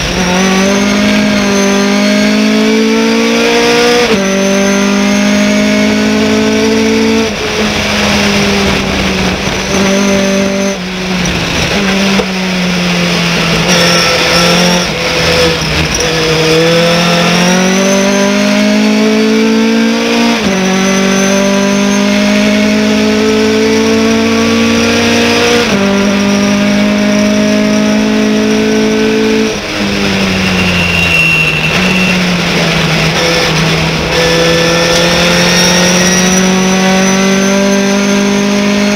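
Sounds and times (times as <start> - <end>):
truck engine accelerating: 0.0 - 38.9.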